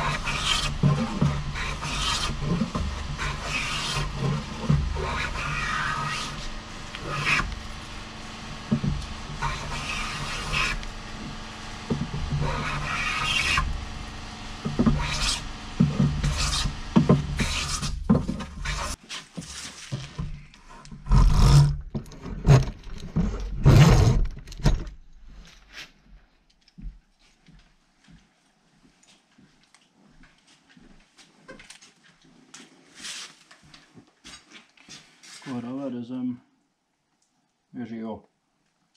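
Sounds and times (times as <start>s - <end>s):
hand plane shaving wood: 0.0s - 24.1s.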